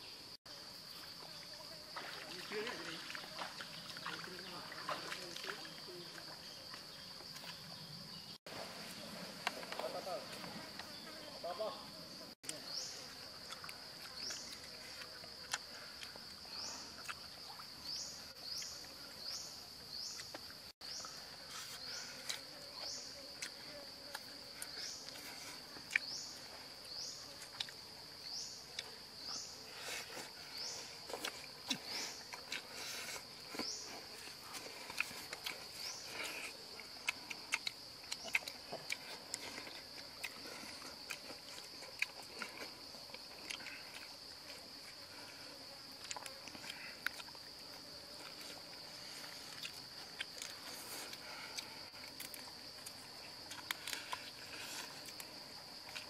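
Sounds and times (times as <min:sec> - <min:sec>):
clicks and crunches of eating: 0:13.4 - 0:16.4, 0:31.1 - 0:45.0, 0:46.0 - 0:47.5, 0:49.5 - 0:56.0.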